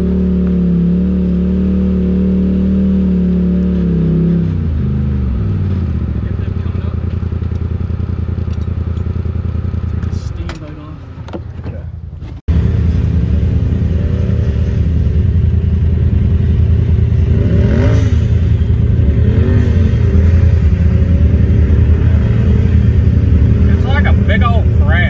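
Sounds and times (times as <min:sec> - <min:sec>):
utility vehicle engine revving: 0:00.0 - 0:11.4, 0:12.2 - 0:25.0.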